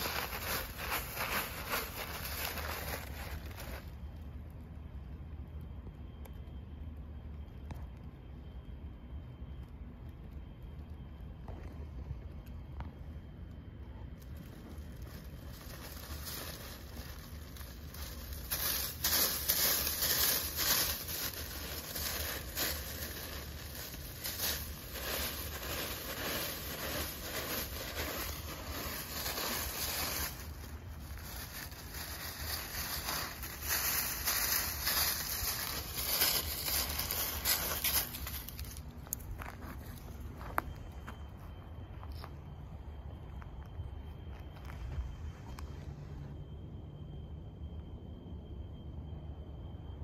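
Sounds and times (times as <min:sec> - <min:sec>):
dry leaves crackling and rustling: 0:00.0 - 0:04.6, 0:14.2 - 0:40.8.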